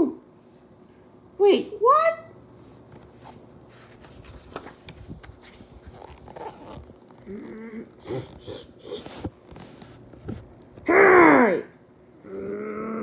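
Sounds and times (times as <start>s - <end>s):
wavering voiced sound: 10.9s - 13.0s.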